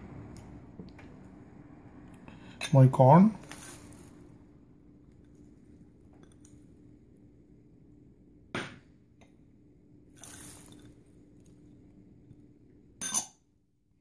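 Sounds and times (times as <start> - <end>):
faint steady hum: 0.0 - 14.0
peas pouring: 3.4 - 4.1, 10.1 - 11.6.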